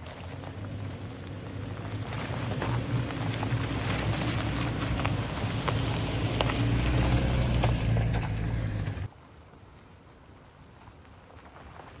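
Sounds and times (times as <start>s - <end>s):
vehicle engine running: 0.0s - 9.1s.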